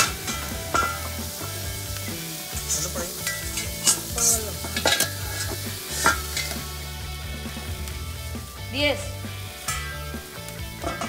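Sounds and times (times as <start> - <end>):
metal tongs and lids clanking: 0.0 - 6.7, 9.6 - 10.1, 10.7 - 11.0
steaks sizzling on a grill: 0.0 - 11.0.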